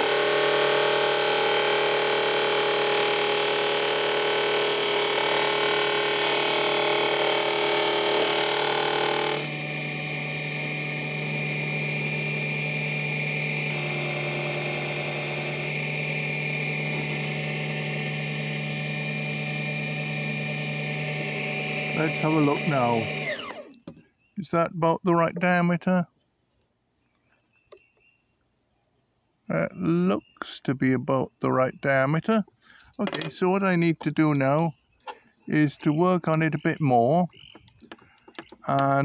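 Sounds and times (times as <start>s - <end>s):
cutter rasping wood: 0.0s - 23.8s, 35.5s - 39.0s
lathe motor whine: 0.0s - 23.8s.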